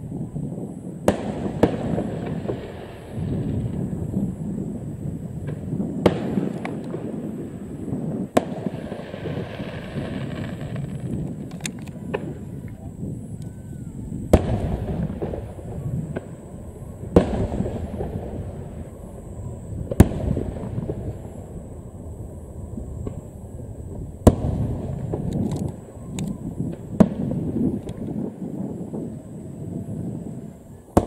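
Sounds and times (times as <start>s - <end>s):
small firework crackles: 0.0s - 31.0s
firework shells bursting with echo: 14.2s - 21.6s.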